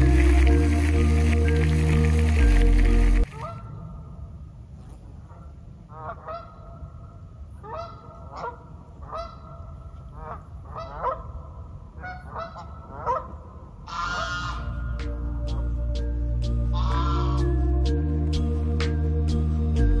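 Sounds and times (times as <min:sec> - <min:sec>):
geese honking: 0:00.0 - 0:03.9, 0:05.9 - 0:06.9, 0:07.6 - 0:18.0
steady low rumble: 0:00.0 - 0:20.0.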